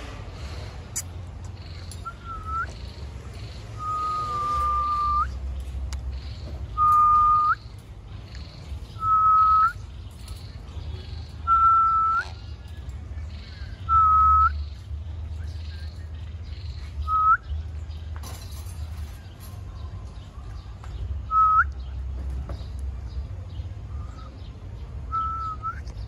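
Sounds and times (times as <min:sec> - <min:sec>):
parrot whistled call: 0:03.8 - 0:05.4.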